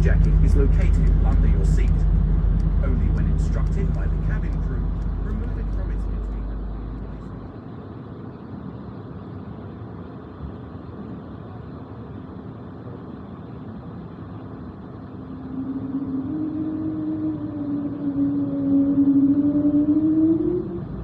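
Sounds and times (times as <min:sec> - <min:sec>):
jet engines spooling up: 0:00.0 - 0:08.4, 0:14.4 - 0:21.0
airliner cabin noise: 0:00.0 - 0:21.0.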